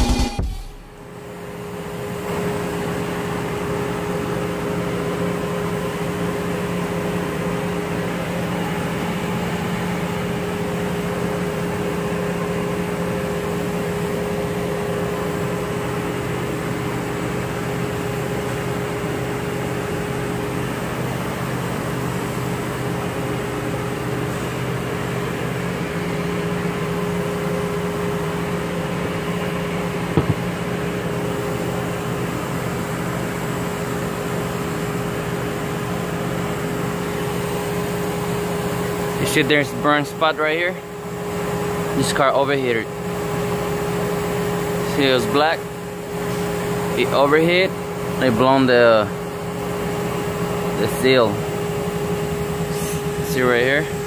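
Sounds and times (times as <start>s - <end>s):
mechanical hum: 0.0s - 54.0s
short knock: 30.2s - 30.5s.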